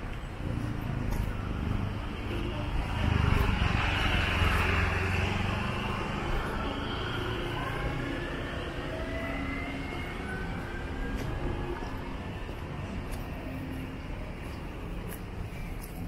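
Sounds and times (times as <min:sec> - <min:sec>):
street traffic: 0:00.0 - 0:16.0
vehicle passing close: 0:00.4 - 0:12.2.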